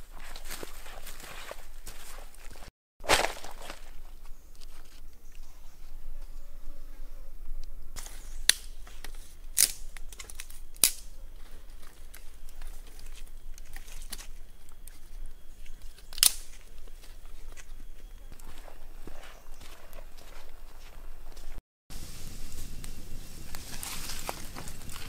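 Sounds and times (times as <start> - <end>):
sticks and twigs clicking: 7.6 - 21.6, 22.6 - 25.0.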